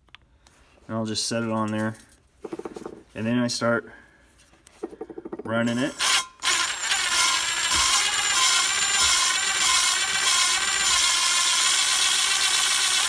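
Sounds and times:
loud metallic grinding: 5.7 - 13.0.

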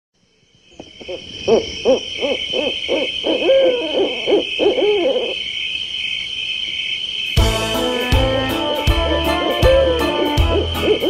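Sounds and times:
crickets chirping: 0.2 - 11.0
owl hooting: 0.7 - 6.2, 8.9 - 11.0.

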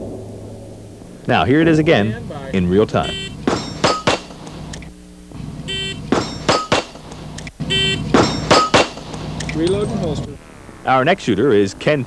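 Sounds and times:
pistol shots: 3.4 - 4.6, 6.0 - 7.3, 8.1 - 9.2.

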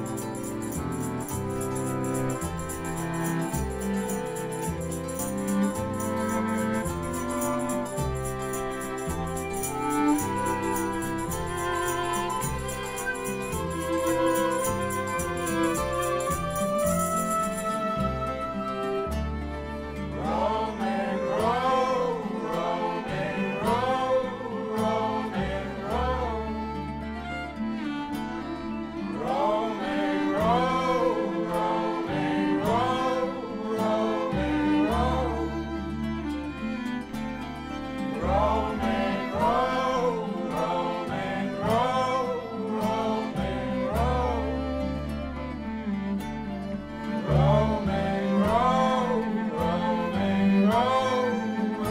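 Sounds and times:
upright bass: 0.0 - 24.2, 29.8 - 51.9
voices singing: 0.0 - 36.8, 37.6 - 45.8, 47.0 - 51.9
folk band playing: 0.0 - 51.9
strummed nylon-string guitar: 0.0 - 51.9
man singing: 20.2 - 26.9, 29.1 - 35.8, 38.2 - 44.9, 47.2 - 51.9.

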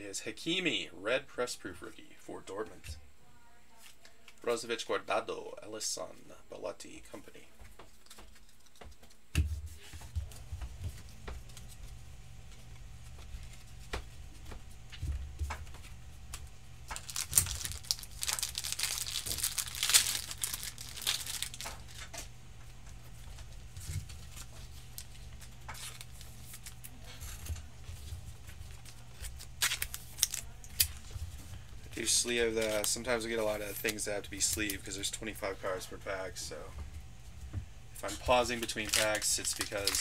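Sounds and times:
cards tapping and rustling: 7.6 - 11.8, 28.5 - 31.2, 38.1 - 40.0
plastic crinkling: 16.9 - 22.1, 23.8 - 31.4, 38.1 - 40.0.

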